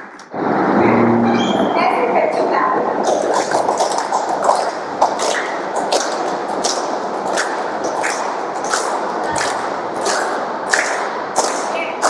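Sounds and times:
continuous background wash: 0:00.0 - 0:12.0
group clapping in rhythm: 0:03.0 - 0:12.0.

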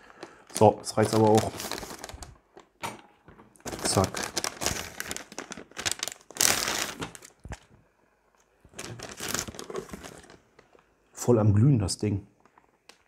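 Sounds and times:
plastic packaging crinkling: 0:00.0 - 0:07.8, 0:08.6 - 0:10.9.

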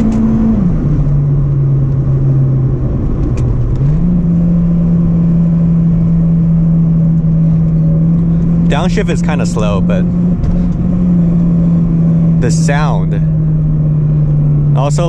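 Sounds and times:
car engine accelerating: 0:00.0 - 0:15.0
road noise: 0:00.0 - 0:15.0.

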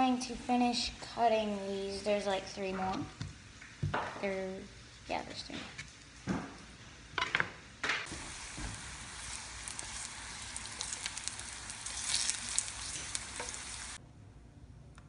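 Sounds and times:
slices sizzling in hot oil: 0:08.1 - 0:14.0.

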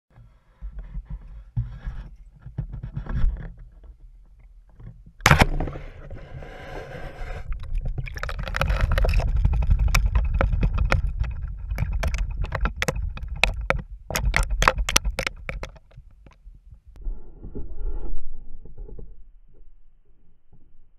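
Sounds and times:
stingray flapping and dripping: 0:07.4 - 0:16.5.

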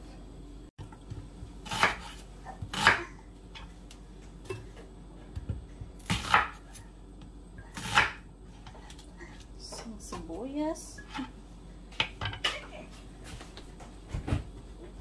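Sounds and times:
knife cutting onion on board: 0:01.6 - 0:03.1, 0:06.0 - 0:06.9, 0:07.7 - 0:08.2.

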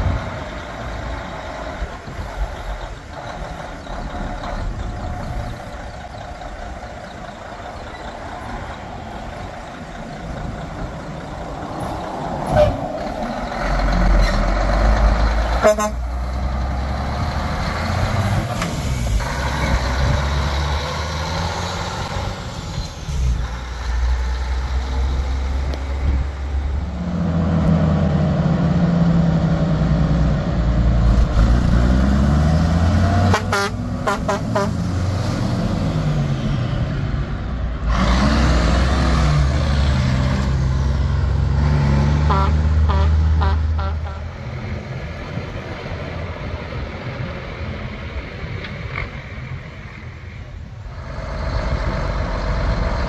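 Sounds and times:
diesel trucks accelerating: 0:00.0 - 0:53.0
horn toots: 0:15.6 - 0:16.2, 0:33.2 - 0:34.9, 0:42.2 - 0:44.4.

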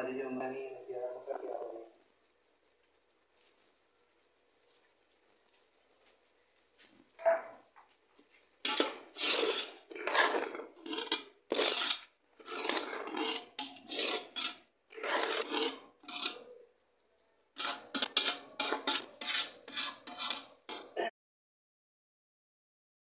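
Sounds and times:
metal spoon scraping metal pot: 0:08.6 - 0:16.6, 0:17.6 - 0:21.0.

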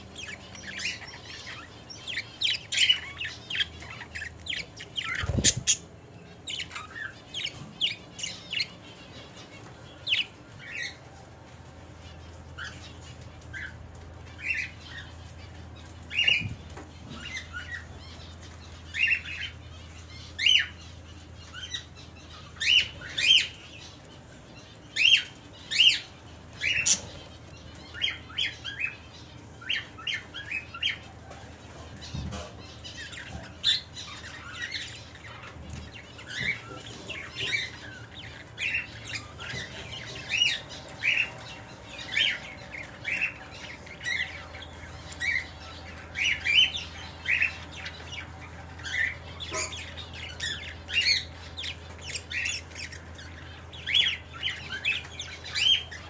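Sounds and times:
budgerigars chirping: 0:00.0 - 0:11.1, 0:12.0 - 0:56.0.

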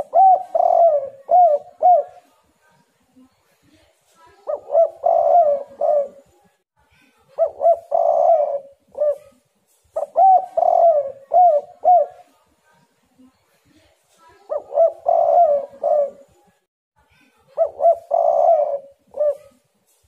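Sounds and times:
dove cooing: 0:00.0 - 0:02.3, 0:04.4 - 0:06.3, 0:07.4 - 0:09.4, 0:10.0 - 0:12.3, 0:14.5 - 0:16.4, 0:17.6 - 0:19.6.

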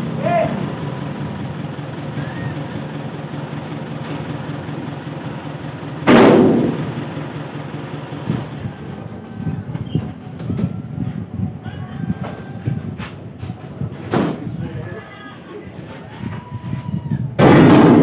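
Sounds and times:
truck engine idling: 0:00.0 - 0:13.5
sudden loud burst: 0:06.0 - 0:07.0, 0:17.4 - 0:18.0.

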